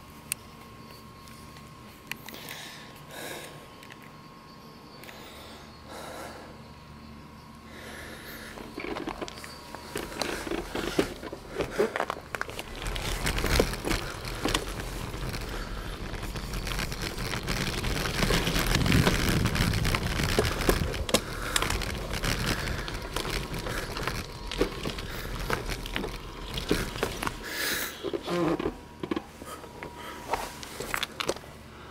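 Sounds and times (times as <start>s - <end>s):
bicycle tyre noise on rough road: 7.7s - 31.5s
wind buffeting microphone: 12.8s - 27.0s.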